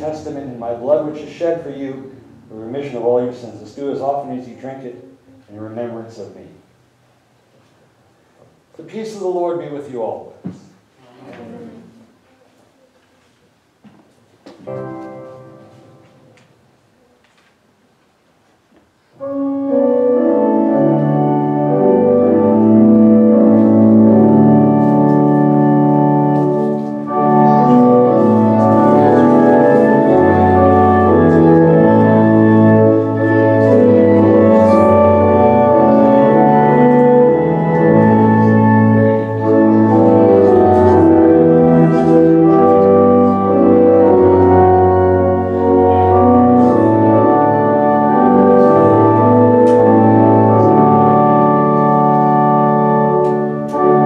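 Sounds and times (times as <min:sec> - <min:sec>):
organ playing sustained chords: 0:00.0 - 0:04.9, 0:14.6 - 0:16.4, 0:19.2 - 0:54.0.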